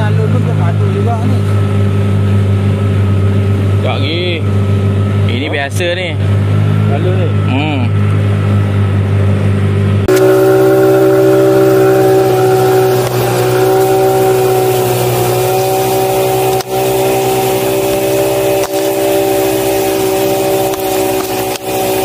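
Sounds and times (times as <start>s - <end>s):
outboard motor at full throttle: 0.0s - 22.0s
water rushing: 10.1s - 22.0s.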